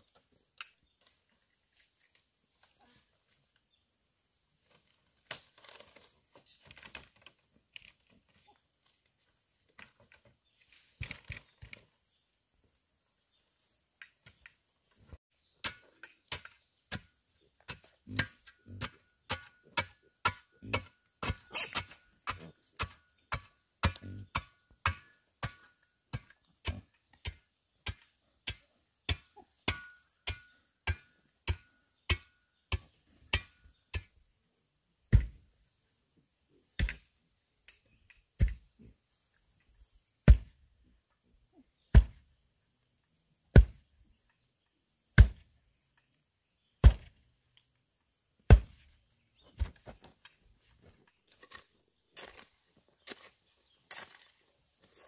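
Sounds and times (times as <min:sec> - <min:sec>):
wooden pole pounding soil: 0:14.0 - 0:34.2, 0:35.1 - 0:35.5, 0:36.8 - 0:37.1, 0:37.7 - 0:38.8, 0:40.2 - 0:40.7, 0:41.8 - 0:42.3, 0:43.5 - 0:43.9, 0:45.1 - 0:45.6, 0:46.8 - 0:47.2, 0:48.4 - 0:54.4.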